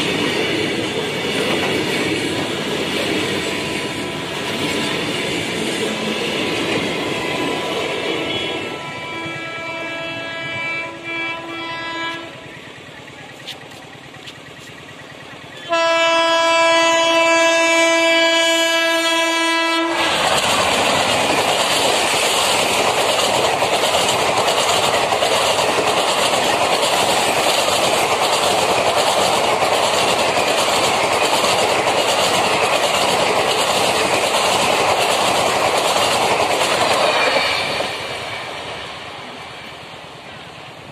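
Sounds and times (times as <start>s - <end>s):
train wheels clicking over rail joints: 0.0s - 8.4s, 12.1s - 16.2s, 19.8s - 40.0s
locomotive horn blast: 8.2s - 12.6s, 15.6s - 20.1s.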